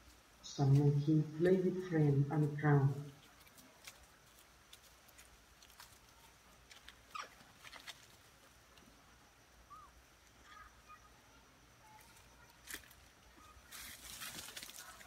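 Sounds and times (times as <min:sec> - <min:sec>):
faint chirps: 0:05.7 - 0:15.0.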